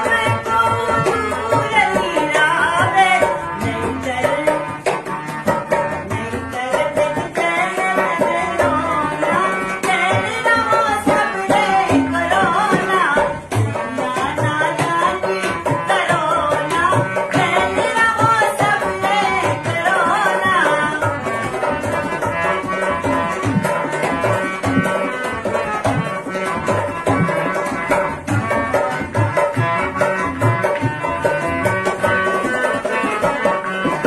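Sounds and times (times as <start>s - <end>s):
woman singing: 0.0s - 25.6s
hand drum beat: 0.0s - 34.0s
harmonium melody: 0.0s - 34.0s.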